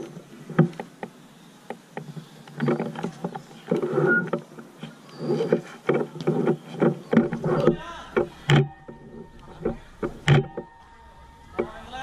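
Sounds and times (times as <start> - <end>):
sharp clicks and knocks: 0.0 - 10.8
players calling out: 7.5 - 8.6.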